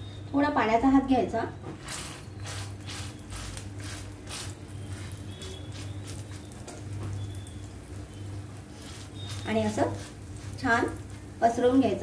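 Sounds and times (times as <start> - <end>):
wet fingers patting dough: 2.4 - 11.3.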